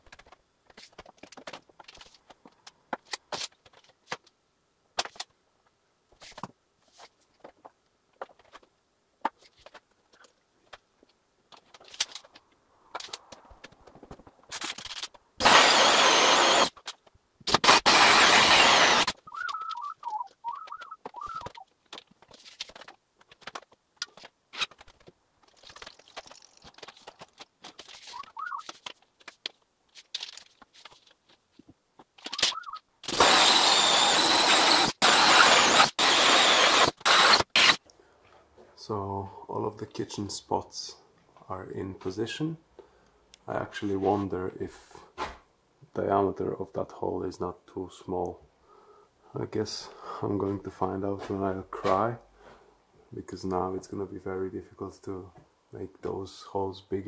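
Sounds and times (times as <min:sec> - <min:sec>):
power drill boring into wood: 0:15.4 - 0:16.8, 0:17.5 - 0:19.2, 0:32.3 - 0:37.8.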